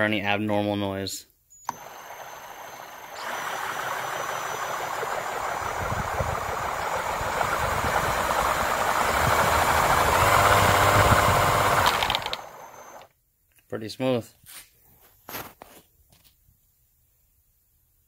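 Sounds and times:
rotors whirring: 1.6s - 13.1s
power drill spinning supercharger: 1.7s - 13.1s.

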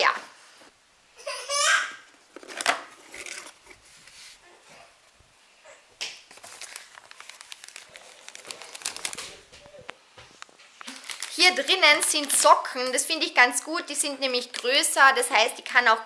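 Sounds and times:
plastic packaging crinkling: 2.2s - 4.4s, 6.2s - 9.9s, 10.8s - 13.0s.

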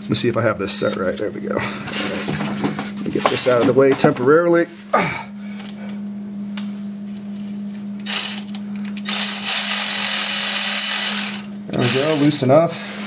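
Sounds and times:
cordless electric ratchet running: 8.0s - 12.5s.

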